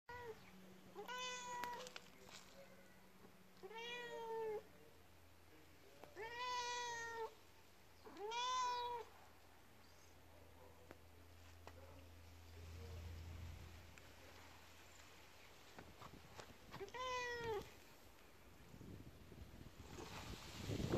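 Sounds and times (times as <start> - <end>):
cat meowing: 0.1 - 0.4, 1.0 - 1.9, 3.6 - 4.6, 6.2 - 7.4, 8.0 - 9.1, 16.8 - 17.7.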